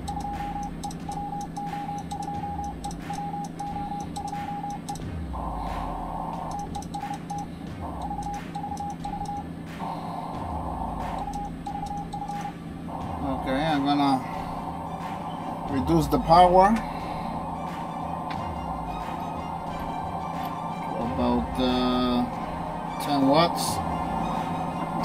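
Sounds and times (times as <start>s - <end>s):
morse code beeps: 0.0s - 16.4s
steady low hum: 0.0s - 25.0s.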